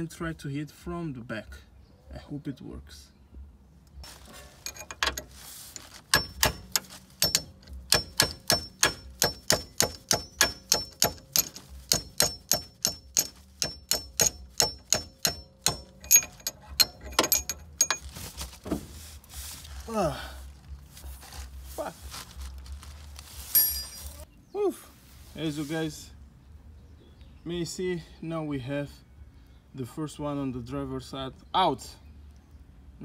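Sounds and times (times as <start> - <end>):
hammer striking steel wrench: 4.6 - 18.1.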